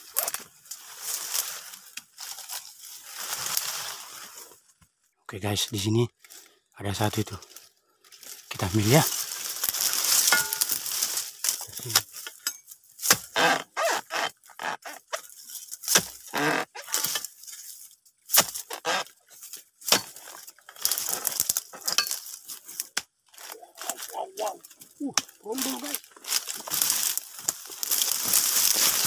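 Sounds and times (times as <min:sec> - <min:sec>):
dry fronds and grass crunching: 0:00.0 - 0:29.0
chisel knocking and cutting fruit: 0:11.9 - 0:14.7, 0:15.8 - 0:17.2, 0:18.3 - 0:19.0, 0:19.8 - 0:20.2.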